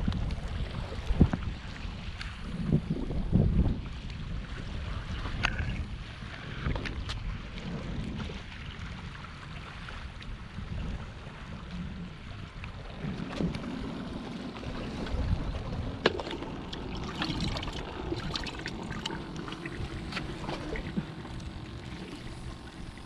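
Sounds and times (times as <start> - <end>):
wind rumbling on microphone: 0.0 - 23.0
water washing against rocks: 13.0 - 22.4.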